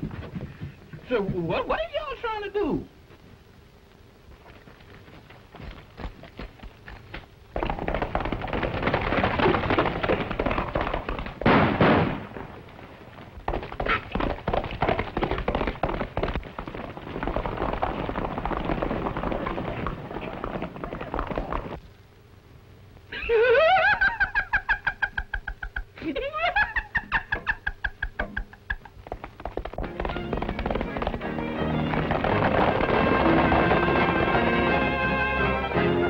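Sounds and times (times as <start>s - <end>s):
horse hooves galloping on dirt: 0.0s - 1.8s, 4.2s - 21.9s, 27.4s - 36.0s
loud bang: 11.4s - 12.5s.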